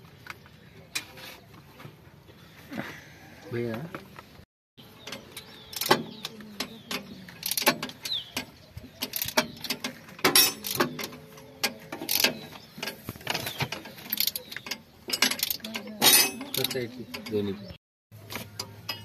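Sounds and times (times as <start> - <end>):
spanners clinking on metal: 5.0 - 17.5, 18.6 - 19.0
ratchet wrench clicking: 5.1 - 6.0, 7.4 - 13.0, 14.0 - 17.3.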